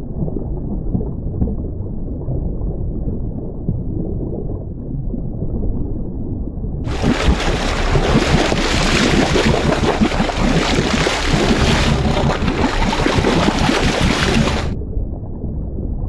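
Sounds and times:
muffled underwater rumble: 0.0s - 16.0s
sea water rushing and splashing: 6.9s - 14.8s
wind buffeting microphone: 6.9s - 14.8s.

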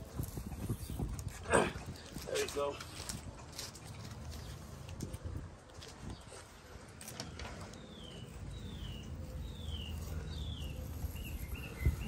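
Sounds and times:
bird chirps: 7.6s - 12.0s.

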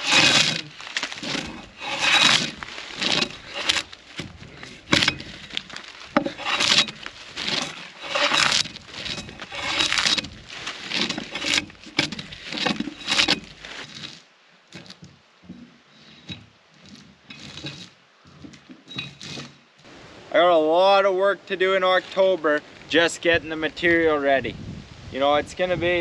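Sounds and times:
bark cracking as it tears: 0.0s - 14.2s
drawknife scraping bark: 0.0s - 14.2s, 15.9s - 19.6s.

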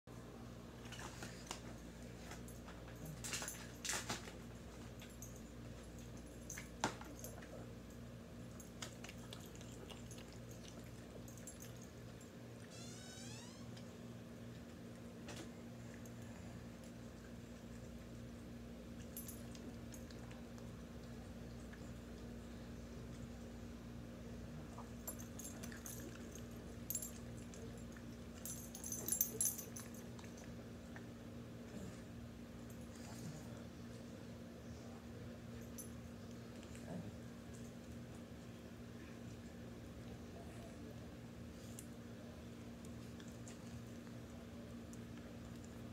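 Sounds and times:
steady low hum: 0.1s - 45.9s
dogs chewing and smacking: 0.7s - 12.7s, 14.2s - 45.9s
collar tags jingling: 25.0s - 30.3s.

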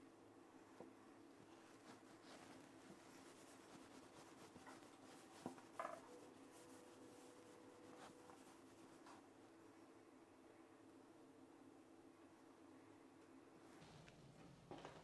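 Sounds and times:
hands rolling dough on wood: 0.8s - 9.4s
small knocks: 4.6s - 6.2s.

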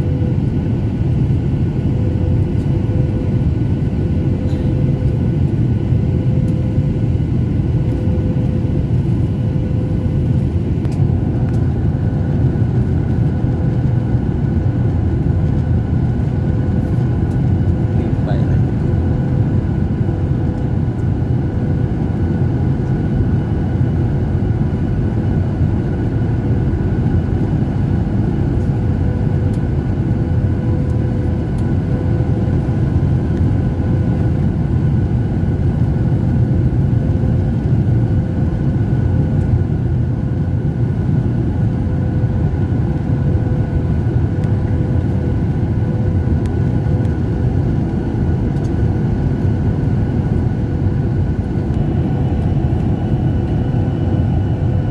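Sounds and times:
airliner cabin engine rumble: 0.0s - 54.9s.

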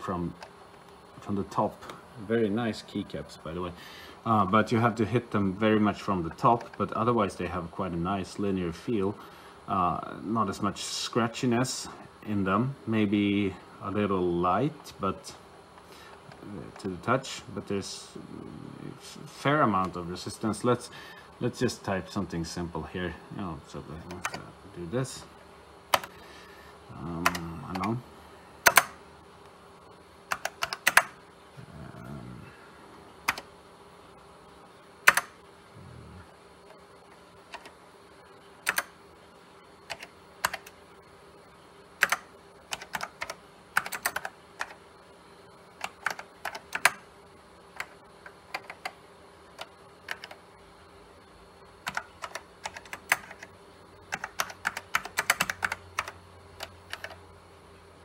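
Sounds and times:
faint steady hum: 0.0s - 58.0s
keyboard key clicks: 28.7s - 29.0s.

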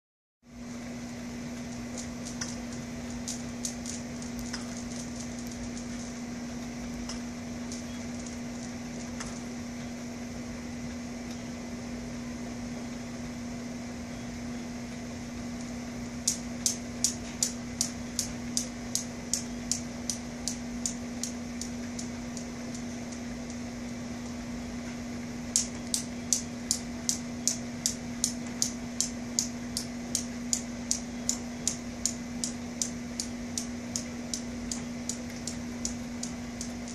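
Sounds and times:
steady low hum: 0.4s - 36.9s
steel balls clacking: 1.8s - 6.2s, 7.0s - 9.5s.

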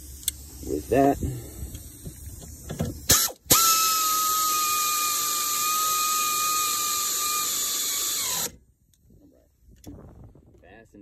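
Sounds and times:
air ratchet whining and hissing: 0.0s - 8.6s.

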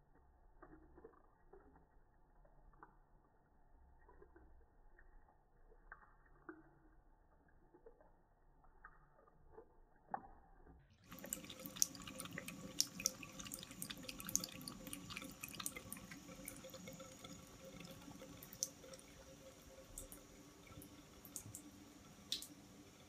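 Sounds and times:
tap water splashing into sink: 11.0s - 23.0s.

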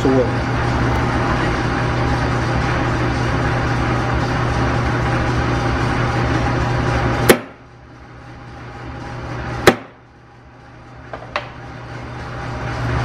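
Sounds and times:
low steady shop hum: 0.0s - 13.0s
metal punch striking steel: 7.2s - 7.6s, 9.6s - 10.0s.

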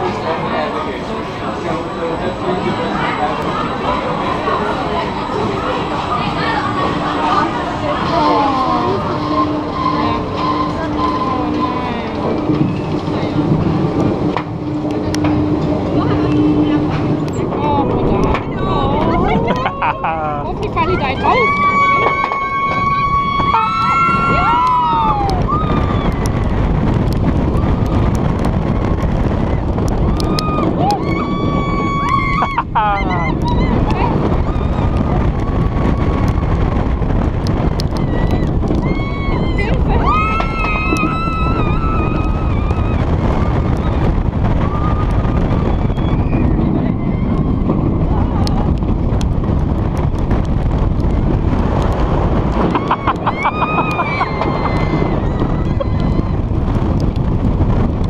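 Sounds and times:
roller coaster train rumbling on track: 0.0s - 58.0s
wind rushing over microphone: 0.0s - 58.0s
riders screaming: 21.2s - 26.5s, 30.0s - 36.8s, 37.8s - 48.7s, 51.6s - 57.2s.

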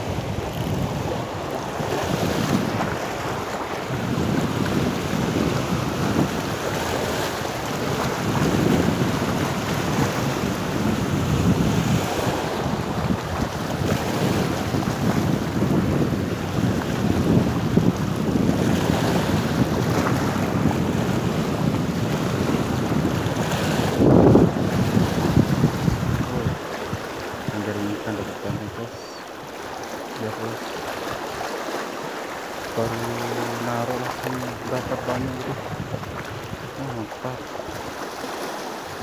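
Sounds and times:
waves washing over rocks: 0.0s - 39.0s
wind rumbling on microphone: 0.0s - 39.0s.

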